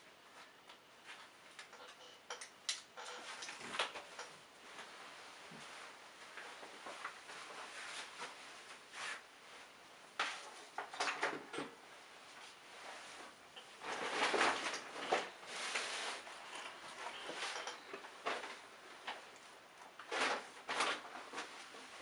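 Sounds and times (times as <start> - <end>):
scraping and rustling handling: 12.3 - 22.0.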